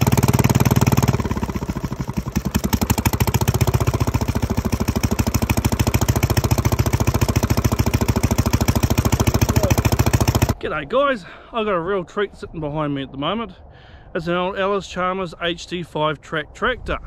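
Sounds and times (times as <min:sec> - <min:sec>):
diesel engine running: 0:00.0 - 0:10.6.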